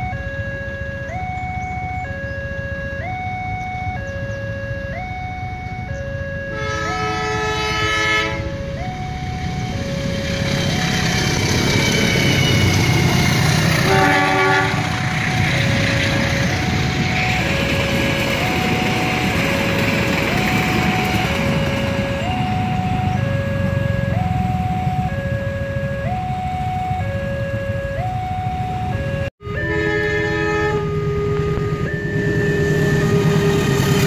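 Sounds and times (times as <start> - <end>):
level-crossing two-tone alarm: 0.0 - 34.0
passing train rumble: 0.0 - 34.0
train horn blowing: 6.5 - 8.6, 10.2 - 16.2, 29.4 - 34.0.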